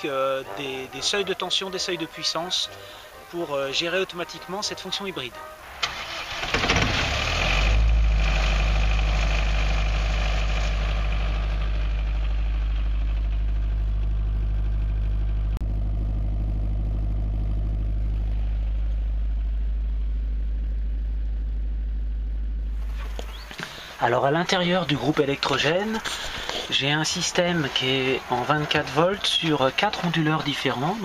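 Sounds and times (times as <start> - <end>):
diesel generator humming: 5.4 - 31.0.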